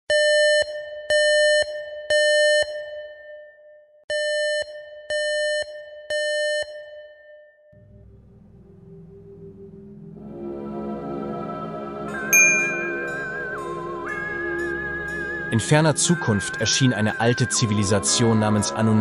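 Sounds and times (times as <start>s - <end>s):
low synthesizer drone: 7.8s - 15.5s.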